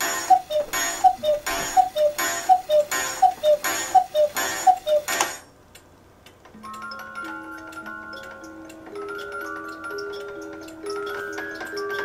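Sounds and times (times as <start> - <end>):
sharp clock click: 0.0 - 5.4
cuckoo clock calls: 0.0 - 5.5.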